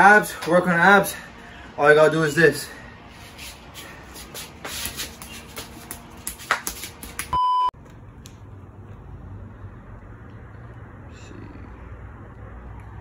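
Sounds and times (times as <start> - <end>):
electronic beep: 7.4 - 7.7.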